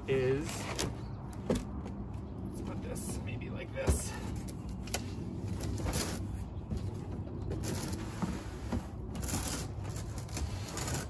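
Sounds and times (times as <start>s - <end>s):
cardboard rustling and scraping: 5.4s - 11.0s.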